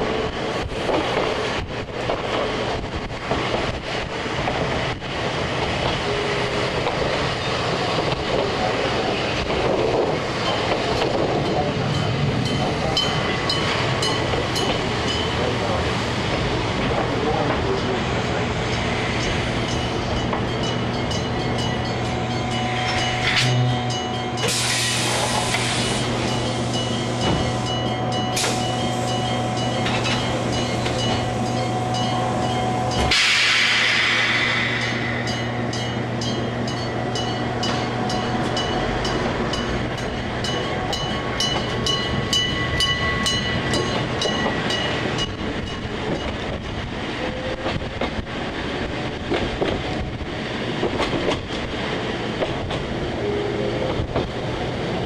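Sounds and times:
electric train hum: 0:00.0 - 0:55.0
hiss of air: 0:24.5 - 0:26.2, 0:33.1 - 0:35.5.

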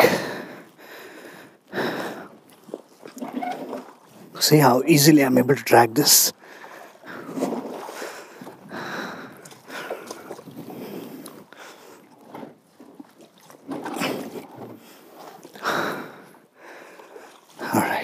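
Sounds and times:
person breathing heavily: 0:00.0 - 0:02.4, 0:08.0 - 0:12.0
river water sloshing and splashing: 0:00.0 - 0:18.0.

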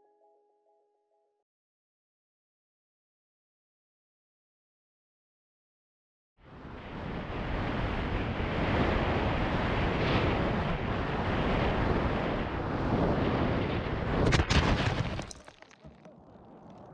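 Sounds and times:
wind rushing over camera: 0:06.4 - 0:15.4.

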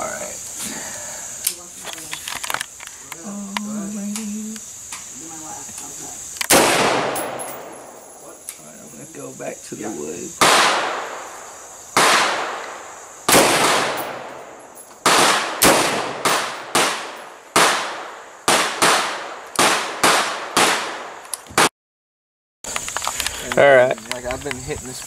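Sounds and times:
rifle shots echoing: 0:06.5 - 0:08.2, 0:10.4 - 0:21.7.

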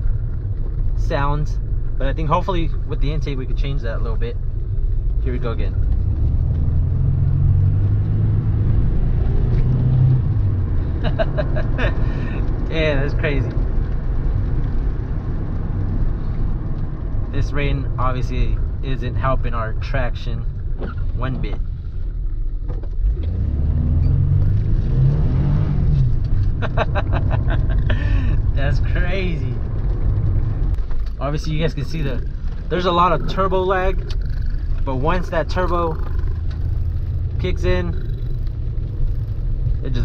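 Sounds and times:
car engine accelerating hard: 0:05.2 - 0:19.8, 0:22.9 - 0:40.0
burst of laughter: 0:26.6 - 0:28.3.

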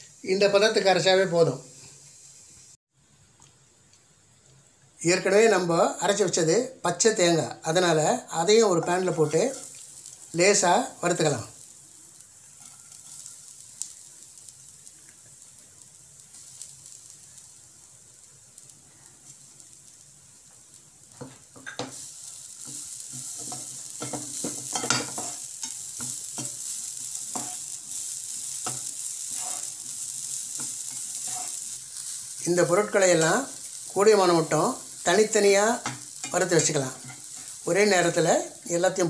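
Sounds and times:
coconut sizzling in a frying pan: 0:00.0 - 0:39.0
spatula scraping a pan: 0:12.6 - 0:13.5, 0:22.6 - 0:32.2.

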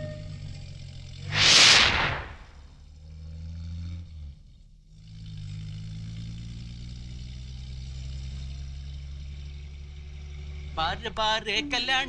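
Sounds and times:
van engine running: 0:02.9 - 0:12.0.

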